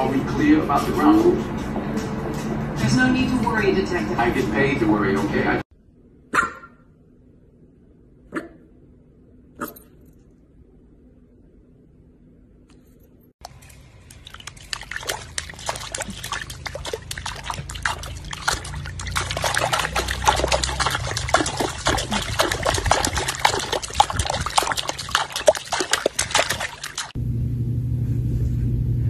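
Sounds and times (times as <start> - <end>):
dog paddling water splashes: 13.4 - 27.2.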